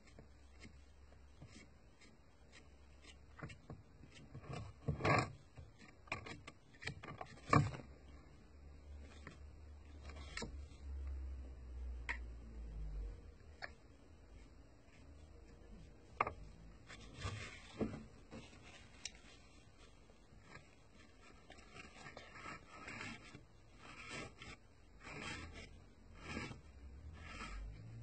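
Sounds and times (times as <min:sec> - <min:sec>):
paintbrush ticking and rubbing: 0:00.0 - 0:04.8.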